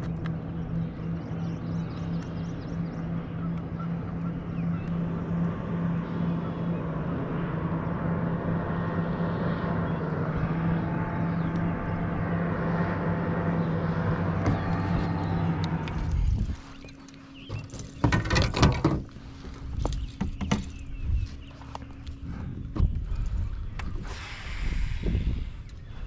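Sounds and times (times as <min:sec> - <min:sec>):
motorboat engine humming: 0:00.0 - 0:26.0.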